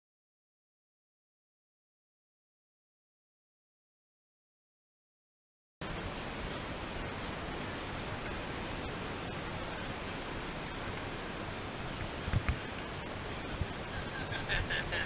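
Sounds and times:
wind buffeting microphone: 6.0 - 15.0.

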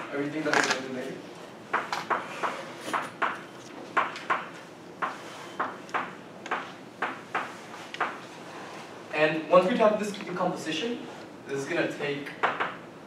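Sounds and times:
chalk tapping and scraping: 5.0 - 8.2.

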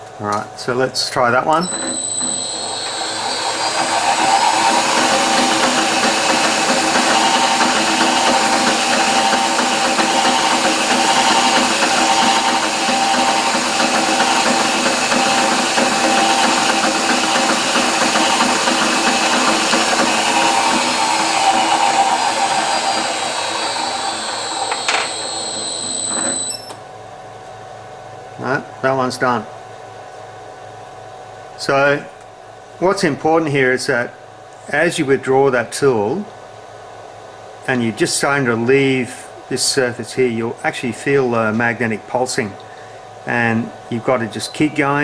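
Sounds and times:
drill press running: 1.5 - 26.8.

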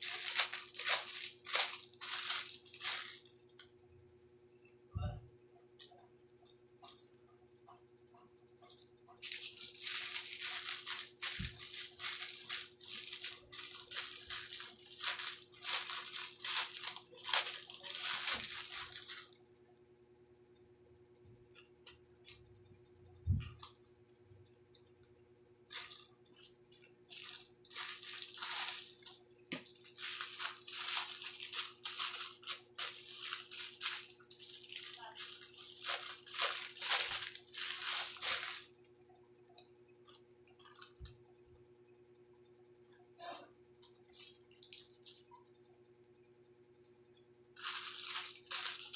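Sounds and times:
plastic packaging crinkling: 0.0 - 3.7, 8.6 - 19.4, 23.3 - 23.8, 25.7 - 39.0, 40.1 - 41.1, 43.8 - 45.3, 47.6 - 48.9
faint steady hum: 0.0 - 48.9.

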